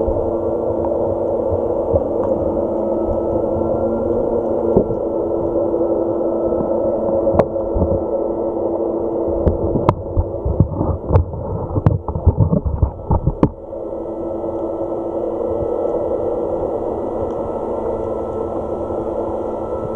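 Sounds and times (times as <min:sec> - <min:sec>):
muffled underwater hum: 0:00.0 - 0:19.9.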